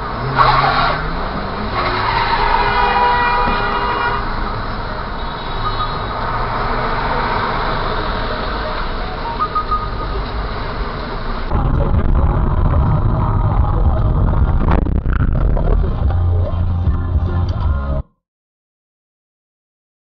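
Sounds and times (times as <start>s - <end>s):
traffic noise: 0.0s - 18.0s
car engine running: 7.8s - 18.0s.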